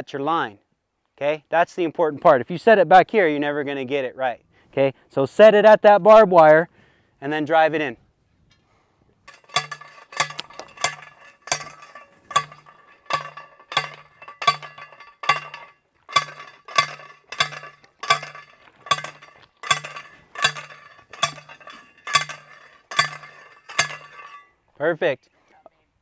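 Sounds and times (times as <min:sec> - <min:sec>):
metal post pounding clanks: 0:09.3 - 0:24.5.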